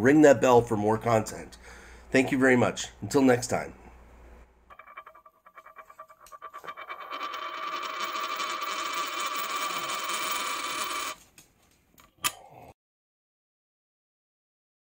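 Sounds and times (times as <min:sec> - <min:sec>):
coin spinning on wooden table: 0:04.7 - 0:11.2.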